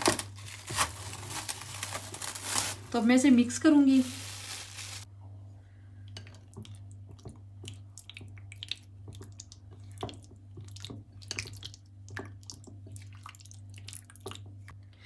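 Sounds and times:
wet squelches of mixing: 6.0 - 14.8.

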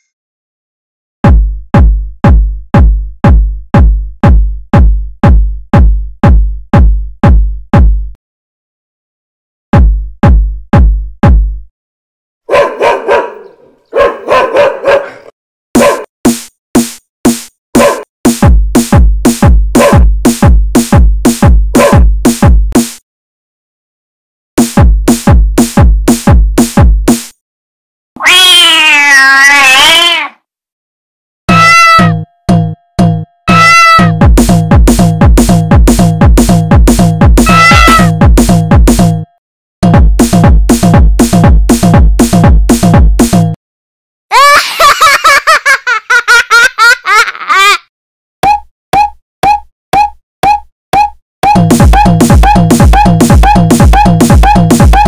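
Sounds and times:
electronic kick drum thumps: 1.2 - 8.2, 9.7 - 11.7, 18.3 - 22.9, 24.6 - 27.2, 34.2 - 39.1, 39.8 - 43.5, 51.4 - 55.0
cat meowing: 28.2 - 30.4, 31.5 - 32.1, 33.5 - 34.1, 37.5 - 38.1.

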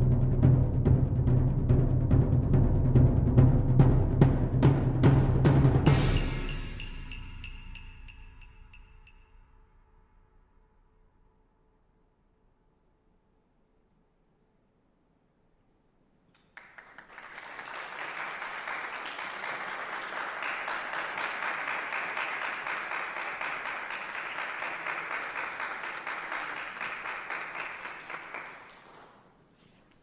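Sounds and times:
audience applause: 16.6 - 29.2.

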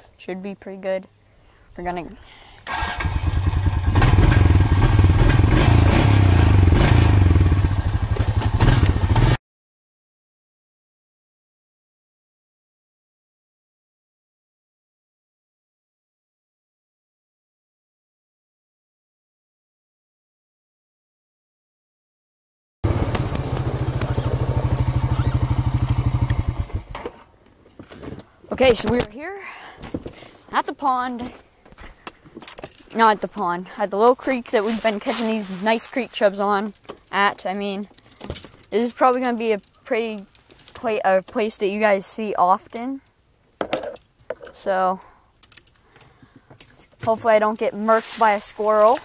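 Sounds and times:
atv engine running: 2.7 - 9.4, 22.8 - 27.0.

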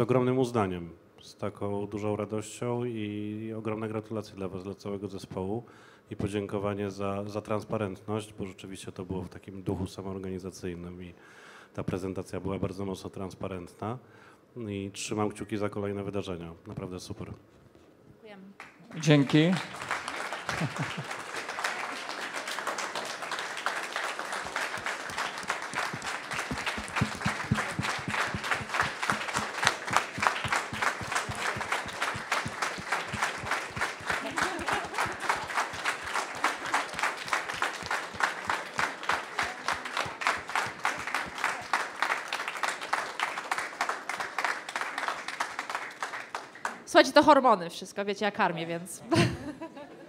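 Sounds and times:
crowd applauding: 18.6 - 46.8.

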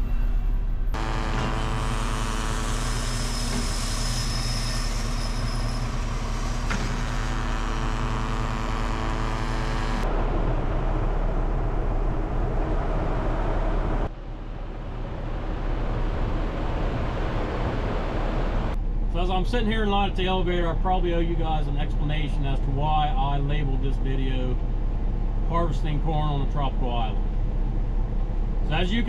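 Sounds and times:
faint high whine: 0.0 - 27.3
machinery drone: 0.0 - 29.0
even rushing noise: 10.0 - 18.8.

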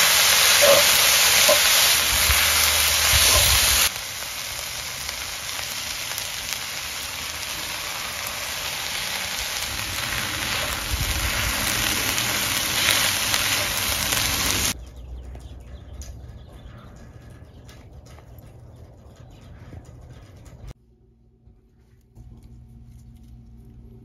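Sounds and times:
vegetables sizzling in a skillet: 0.0 - 14.8.

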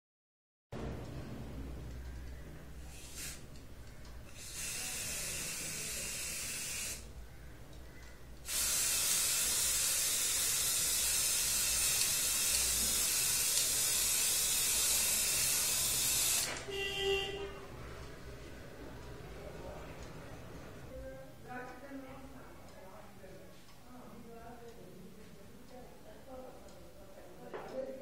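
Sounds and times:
spray paint can hissing: 2.9 - 3.4, 4.3 - 7.1, 8.5 - 16.5.

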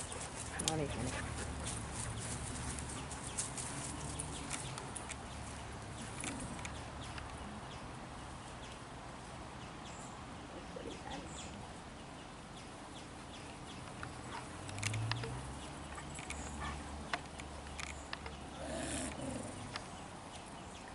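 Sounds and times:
light ticks and rustles: 0.0 - 10.0, 10.6 - 20.9
dog grunting: 18.5 - 19.7.

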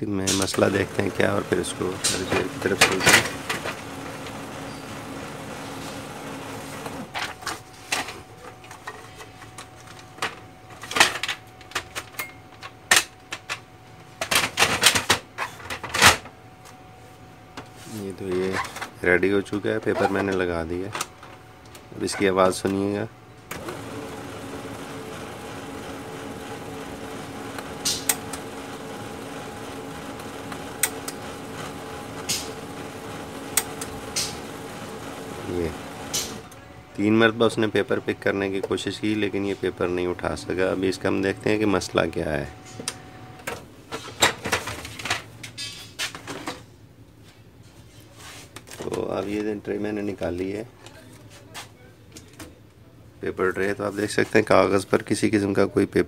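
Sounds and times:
laser printer motor running: 0.3 - 7.3, 21.9 - 43.4
printer mechanical clicks: 0.3 - 7.3, 23.5 - 36.6.

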